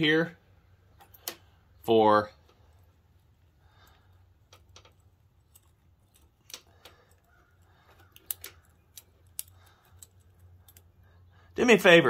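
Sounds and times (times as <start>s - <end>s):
small metal clicks and ticks: 1.0s - 1.5s, 2.4s - 11.2s.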